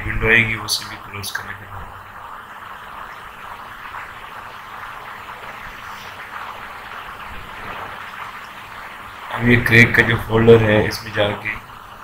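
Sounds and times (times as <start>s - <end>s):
steady background hiss: 0.0s - 12.0s.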